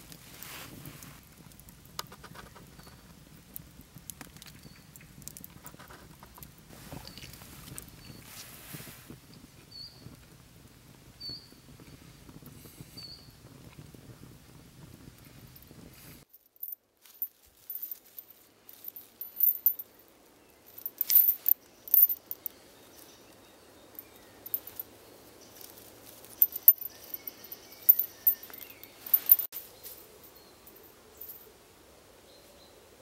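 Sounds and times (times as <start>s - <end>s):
metal snap hooks clinking: 18.7s - 19.9s, 20.7s - 22.6s, 24.0s - 24.9s, 25.6s - 29.5s.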